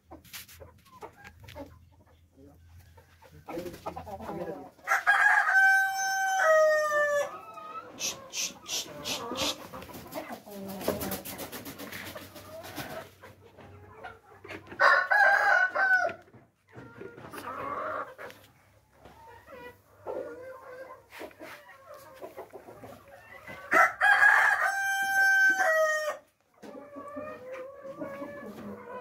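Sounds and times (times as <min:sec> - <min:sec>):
hens clucking: 0:00.0 - 0:15.6, 0:16.2 - 0:29.0
rooster crowing: 0:04.9 - 0:07.3, 0:14.8 - 0:16.2, 0:23.7 - 0:26.2.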